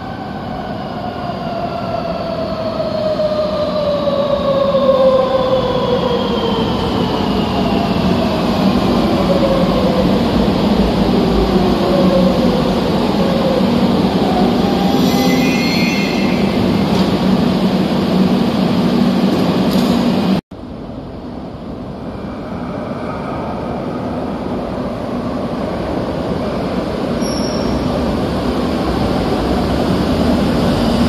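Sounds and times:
brake squeal: 0:27.2 - 0:28.0.

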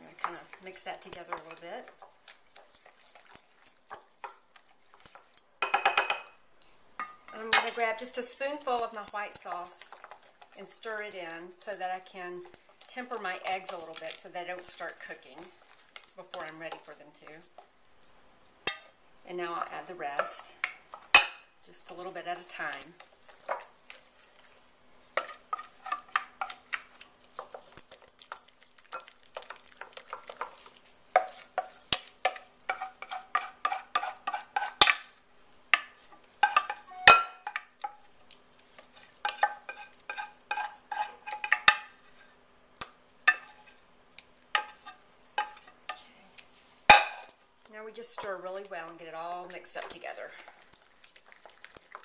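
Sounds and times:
wooden spoon scraping in bowl: 0:29.0 - 0:34.9, 0:38.7 - 0:42.4, 0:43.3 - 0:43.8, 0:44.6 - 0:46.0.

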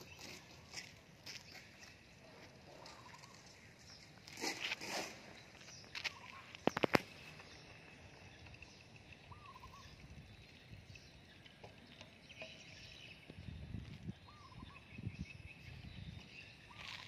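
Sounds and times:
distant birds chirping: 0:00.0 - 0:17.0
wavering bird call: 0:09.3 - 0:10.0.

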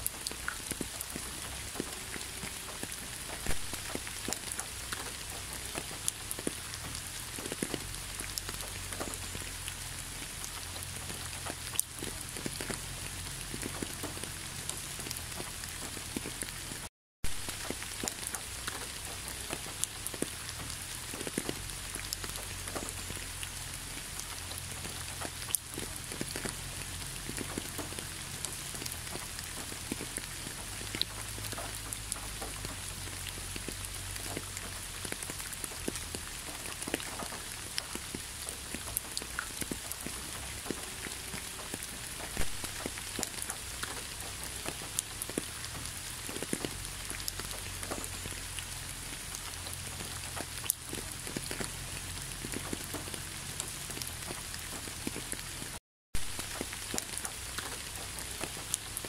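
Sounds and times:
rain falling on asphalt: 0:00.0 - 0:59.0.

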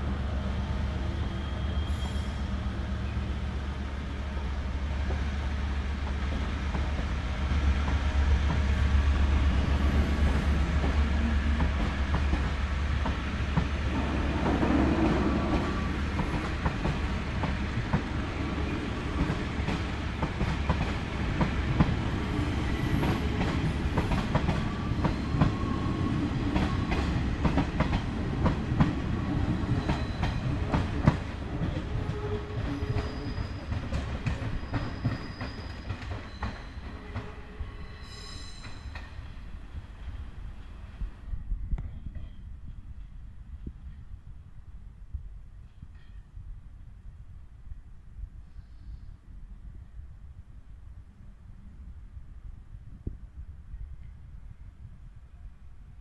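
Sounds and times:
train rumbling past: 0:00.0 - 0:56.0.

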